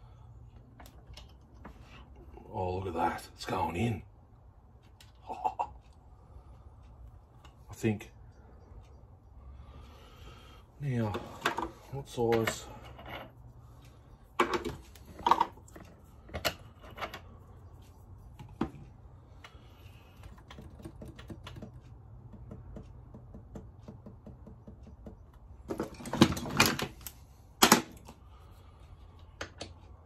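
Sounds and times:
metal tools clicking and knocking: 0:14.4 - 0:17.3.

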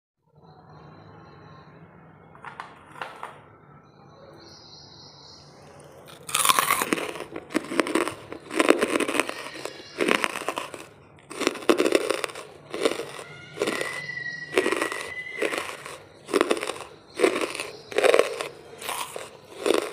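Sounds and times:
charcoal being crunched: 0:06.1 - 0:19.9.

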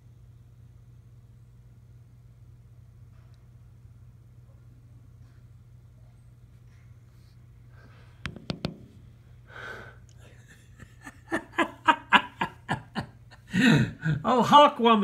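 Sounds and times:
person laughing: 0:10.2 - 0:14.3.

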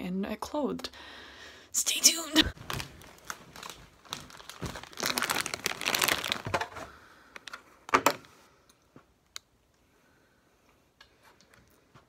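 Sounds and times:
plastic chip bag crinkling: 0:02.6 - 0:08.0.

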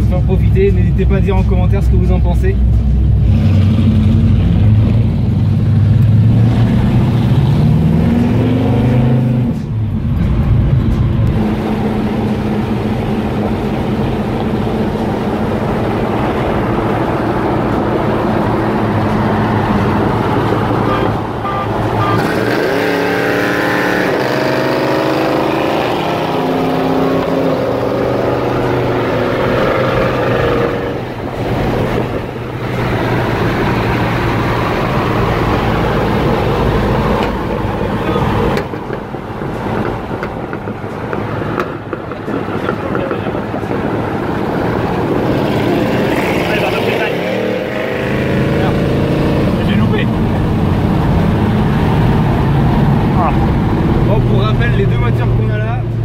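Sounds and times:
car engine accelerating: 0:00.0 - 0:56.0
second car engine alongside: 0:00.0 - 0:56.0.

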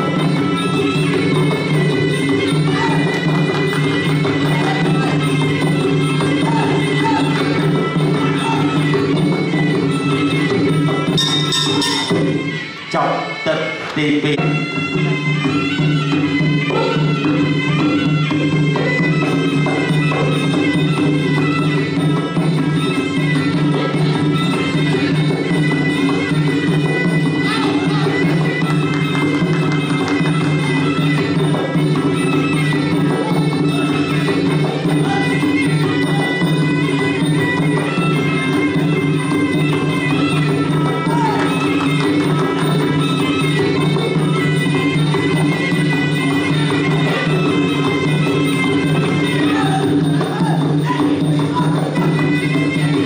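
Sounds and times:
reedy wind instrument melody: 0:00.0 - 0:53.0
small cymbals: 0:08.8 - 0:12.6.

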